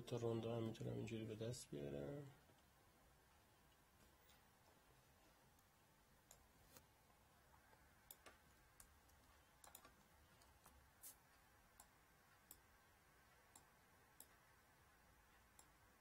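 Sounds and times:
computer mouse clicks: 8.0 - 10.8, 11.7 - 12.7, 13.4 - 14.4.

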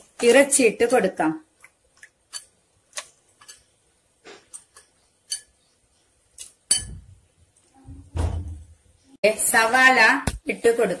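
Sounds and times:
thump in pot: 8.1 - 8.6.

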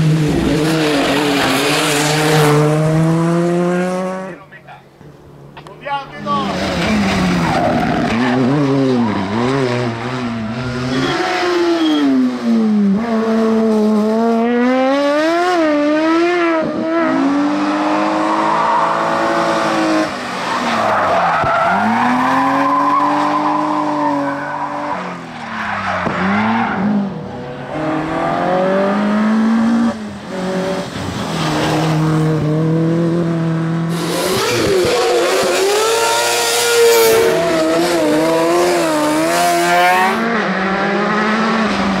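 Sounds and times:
racing car engines revving: 0.0 - 42.0
tyre squeal: 10.5 - 12.2.

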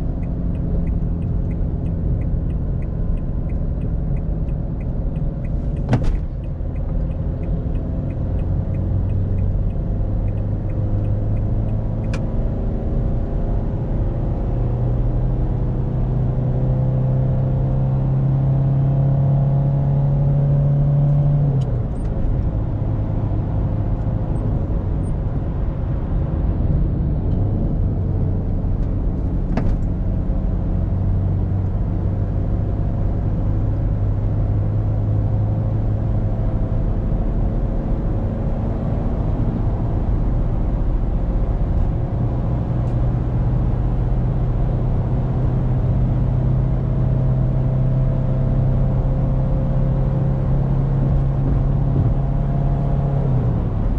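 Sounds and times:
sharp click: 0.2 - 12.4.

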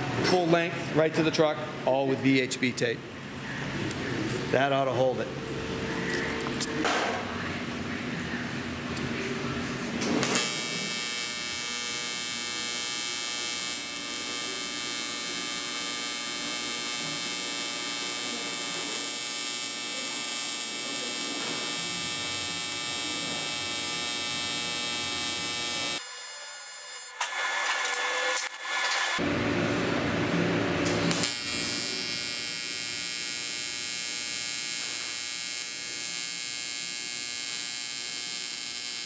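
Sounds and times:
welder arc buzzing: 10.0 - 39.0.

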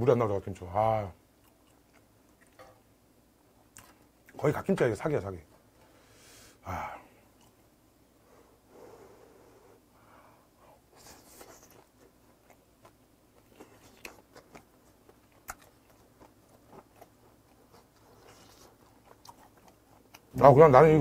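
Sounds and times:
close-mouthed chewing: 11.0 - 20.5.

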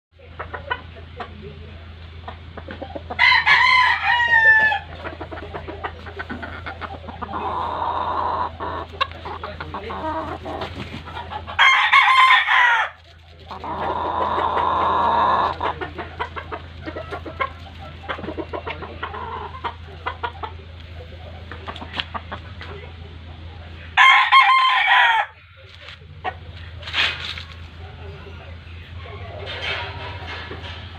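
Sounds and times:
chicken clucking: 0.2 - 30.9
rooster crowing: 3.1 - 4.9, 11.5 - 13.0, 24.0 - 25.4.

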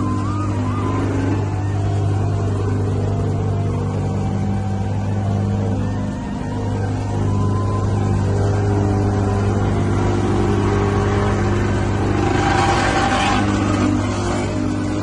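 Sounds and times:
paving machinery engines running: 0.0 - 15.0
roller passing close by: 0.0 - 15.0.

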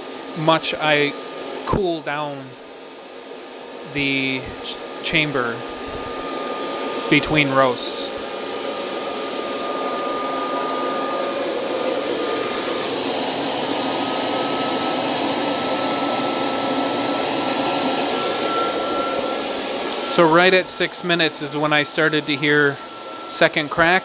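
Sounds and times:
thin steady whine: 3.8 - 24.0
air rushing through roaster: 5.6 - 14.5.

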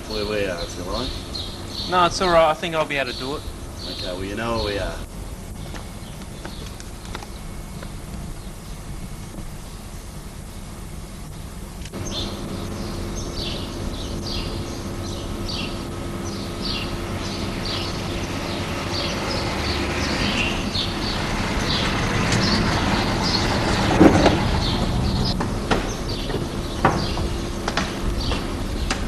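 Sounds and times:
low hum: 0.0 - 29.0
vehicle rumble: 0.0 - 29.0.

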